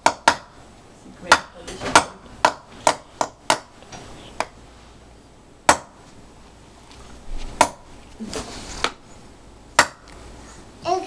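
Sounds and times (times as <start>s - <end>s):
toy hammer knocking on wood: 0.0s - 0.5s, 1.3s - 3.7s.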